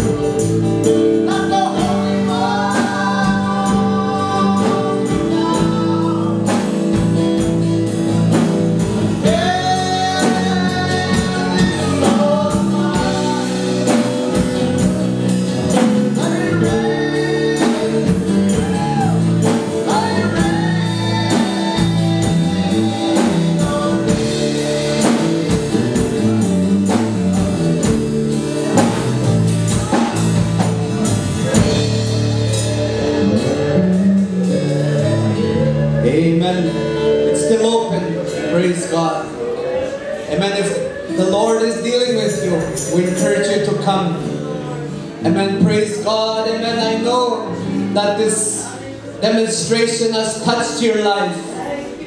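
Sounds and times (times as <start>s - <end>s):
person singing: 0.0s - 7.9s, 9.0s - 27.6s, 28.3s - 52.0s
drum kit beat: 0.0s - 39.1s
gospel band playing: 0.0s - 52.0s
guitars: 0.0s - 52.0s.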